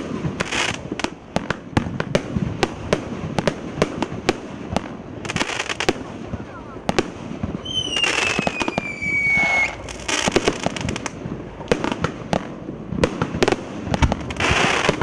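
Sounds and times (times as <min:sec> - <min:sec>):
firework launch thumps and bursts: 0:00.0 - 0:15.0
falling firework whistle: 0:07.6 - 0:11.0.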